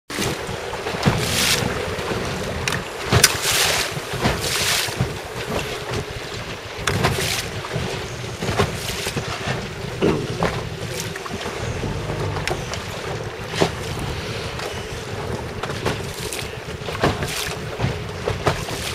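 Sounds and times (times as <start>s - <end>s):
water slapping boat hull: 0.1s - 18.9s
low steady hum: 0.9s - 3.3s, 11.6s - 13.0s.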